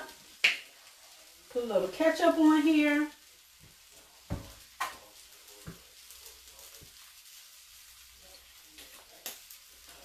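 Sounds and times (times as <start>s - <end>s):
frying pan sizzling: 0.0s - 10.0s.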